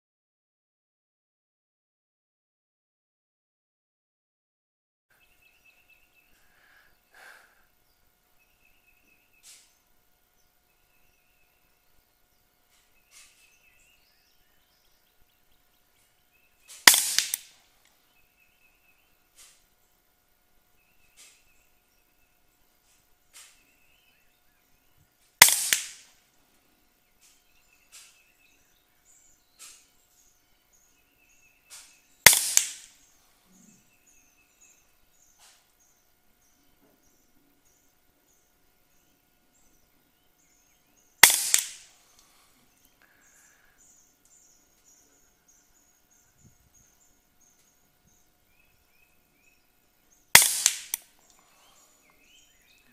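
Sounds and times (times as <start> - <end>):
faint birdsong: 5.1 - 52.9
air rifle shot crack: 16.7 - 17.6, 25.4 - 26.2, 31.8 - 33.0, 41.2 - 41.9, 50.3 - 51.1
pellet striking steel target: 16.7 - 17.6, 25.4 - 26.2, 31.7 - 33.0, 41.2 - 41.9, 50.3 - 51.0.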